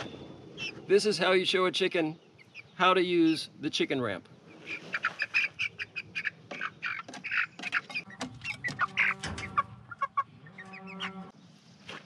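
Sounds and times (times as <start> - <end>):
chicks peeping: 4.5 - 11.3.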